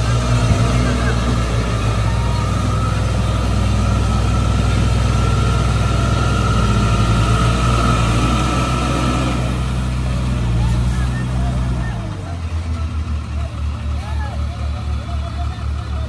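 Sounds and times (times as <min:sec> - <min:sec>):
diesel truck engine under load: 0:00.0 - 0:16.0.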